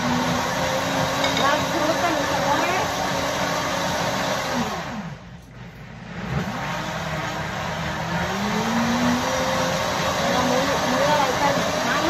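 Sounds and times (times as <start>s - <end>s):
blender motor whining: 0.0s - 12.0s.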